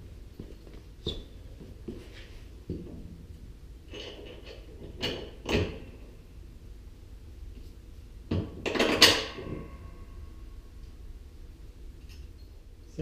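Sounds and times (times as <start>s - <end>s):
tools clanking on steel frame: 3.9s - 5.9s, 8.3s - 9.8s.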